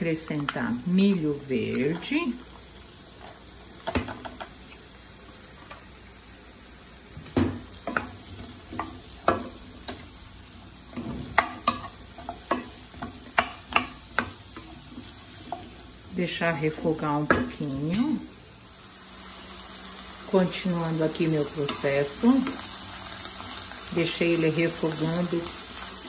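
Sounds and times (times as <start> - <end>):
vegetables sizzling: 0.0 - 26.0
wooden spatula stirring vegetables: 1.5 - 4.8, 7.2 - 17.6.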